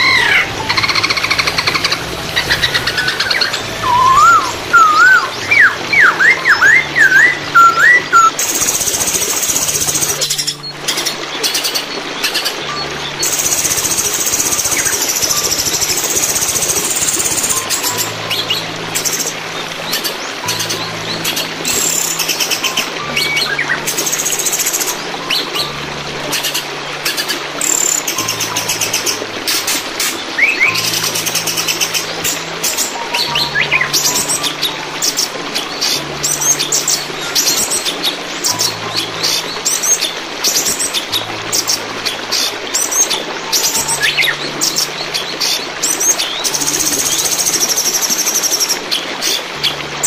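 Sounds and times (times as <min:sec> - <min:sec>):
bird whistling slurred notes: 0:00.0 - 0:11.1
bird singing trills and whistles: 0:00.0 - 0:49.8
flowing water: 0:00.0 - 0:50.0.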